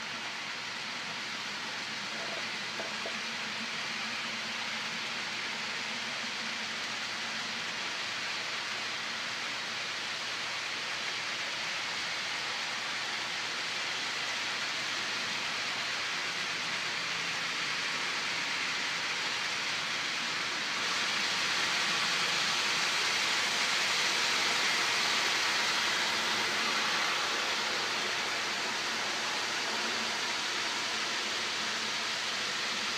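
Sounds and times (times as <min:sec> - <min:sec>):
model train wheels on rail: 0:00.0 - 0:32.9.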